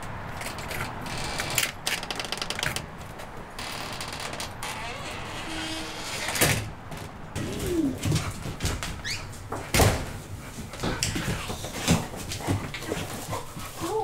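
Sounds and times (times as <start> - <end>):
door opening and shutting: 0.4 - 3.0, 3.6 - 7.7
dog whining: 7.4 - 8.0.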